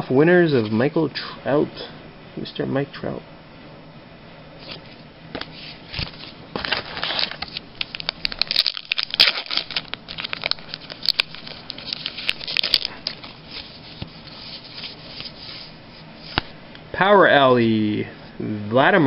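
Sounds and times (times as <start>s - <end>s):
plastic wrapper tearing and crinkling: 6.0s - 15.4s.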